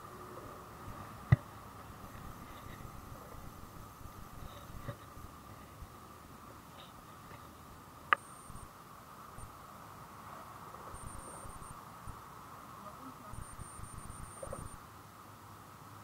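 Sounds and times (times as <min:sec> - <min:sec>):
steady high hum: 0:00.0 - 0:16.0
insects trilling: 0:08.1 - 0:09.8, 0:10.4 - 0:14.8.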